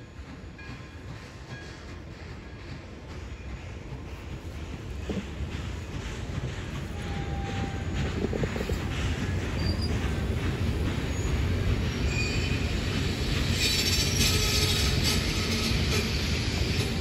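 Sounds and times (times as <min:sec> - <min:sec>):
train wheels rumbling on rails: 0:00.0 - 0:17.0
high wheel squeals: 0:09.5 - 0:10.2, 0:11.1 - 0:16.9.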